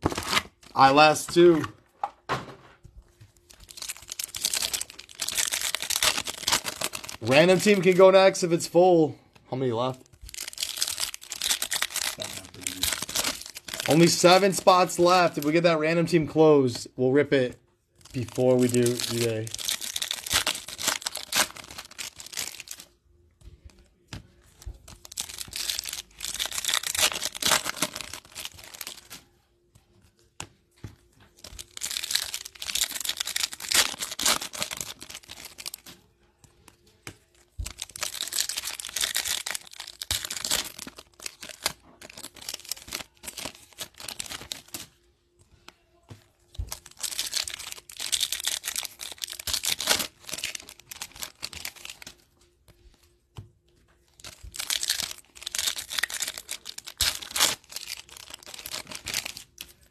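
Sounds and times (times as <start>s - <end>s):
foil wrappers tearing and crinkling: 0.0s - 1.5s, 3.4s - 8.7s, 10.0s - 16.0s, 18.0s - 22.9s, 24.7s - 29.3s, 31.4s - 36.1s, 37.3s - 45.0s, 46.6s - 52.2s, 54.2s - 59.9s.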